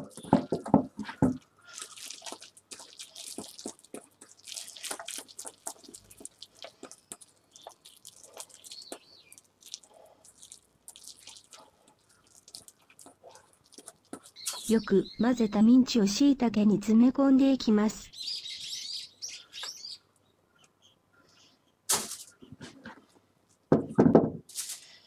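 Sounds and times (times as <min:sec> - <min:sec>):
hand kneading wet meat: 0:01.0 - 0:14.9.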